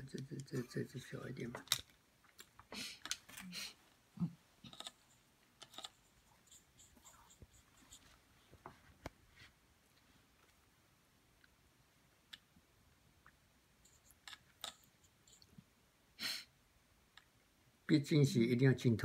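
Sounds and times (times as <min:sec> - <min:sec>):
painting materials scraping and tapping: 0:04.6 - 0:09.5.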